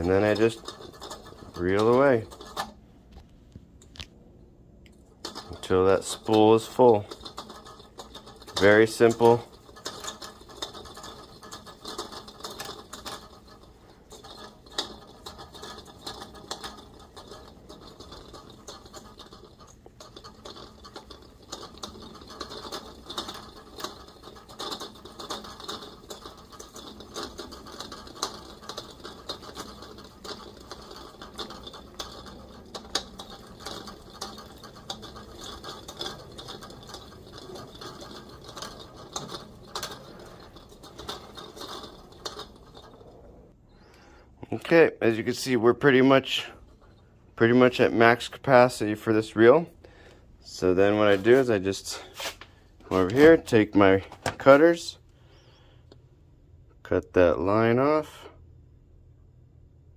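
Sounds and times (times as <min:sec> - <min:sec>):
fishing reel whirring and ticking: 0:00.0 - 0:02.8, 0:05.2 - 0:43.3.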